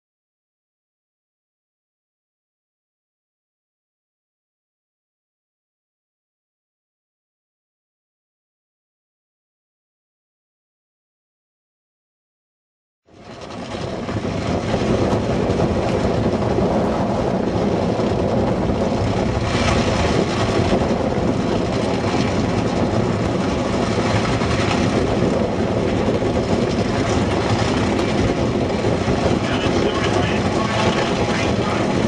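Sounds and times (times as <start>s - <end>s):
dragster engine running: 13.1s - 32.0s
wind buffeting microphone: 13.1s - 32.0s.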